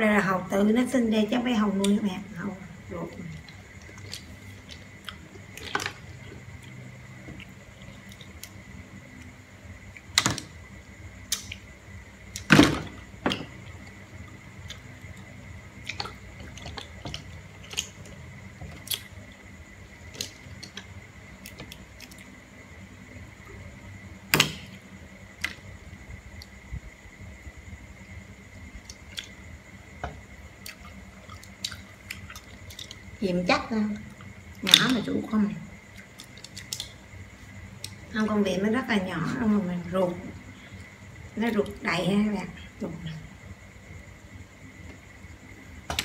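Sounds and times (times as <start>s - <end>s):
faint high whine: 0.0s - 46.0s
wet squishing: 3.2s - 8.6s, 15.8s - 19.4s, 30.6s - 33.1s, 36.0s - 37.0s.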